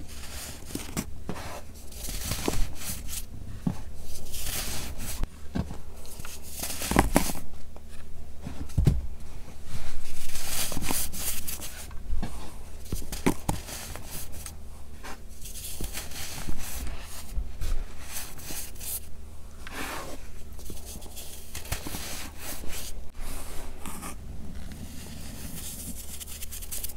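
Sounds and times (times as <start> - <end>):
baking soda crunching and scraping: 0.0 - 3.3, 3.9 - 5.3, 6.0 - 7.4, 9.9 - 26.9.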